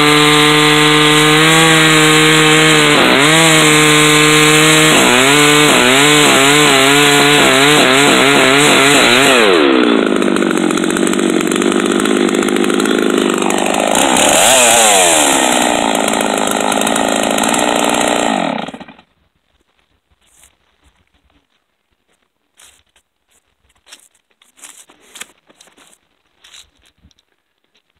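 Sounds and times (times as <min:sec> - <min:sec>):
chainsaw cutting log: 0:00.0 - 0:19.1, 0:23.9 - 0:26.7.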